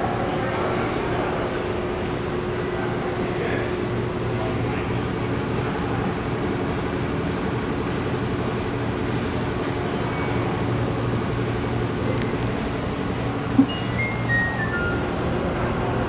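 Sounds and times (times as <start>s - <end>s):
low hum and hiss: 9.8s - 16.0s.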